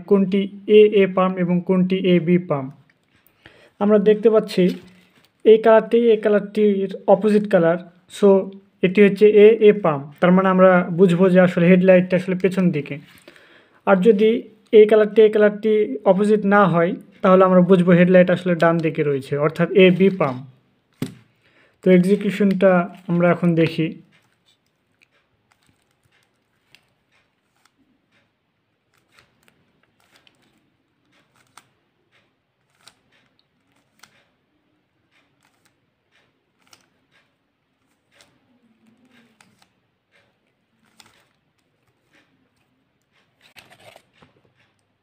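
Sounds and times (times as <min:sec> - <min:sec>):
puzzle cube layers clicking: 0:17.1 - 0:20.4, 0:28.9 - 0:31.8, 0:32.6 - 0:34.3, 0:35.2 - 0:35.8, 0:36.6 - 0:38.4, 0:40.8 - 0:42.2.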